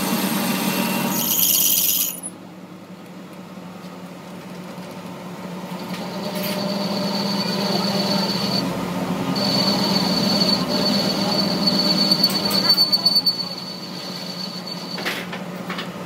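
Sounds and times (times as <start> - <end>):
metal lathe humming: 6.0 - 15.0
high cutting whine: 9.3 - 15.0.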